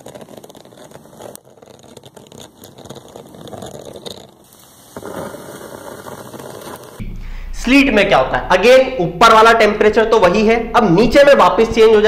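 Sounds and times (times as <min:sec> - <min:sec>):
sleet crackling on a car: 0:00.0 - 0:07.0.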